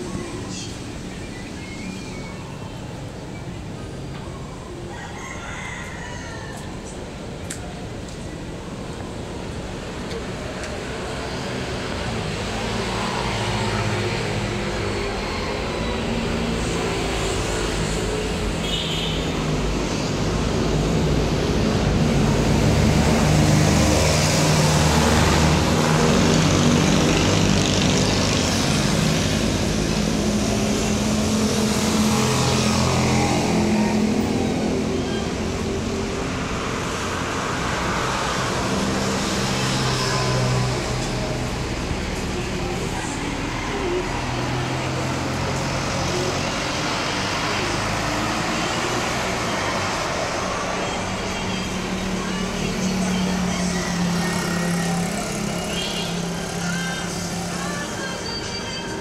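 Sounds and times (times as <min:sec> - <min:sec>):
car engines passing: 0:00.0 - 0:59.0
motorcycle engines passing: 0:06.7 - 0:59.0.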